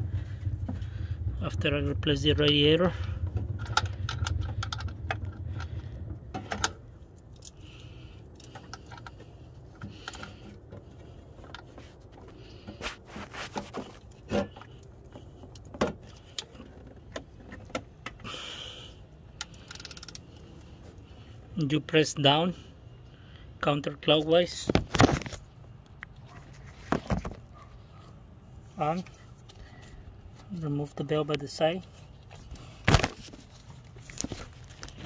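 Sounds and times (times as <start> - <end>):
low rumble: 0.0 - 12.8
ratchet wrench clicking on metal: 19.4 - 20.4.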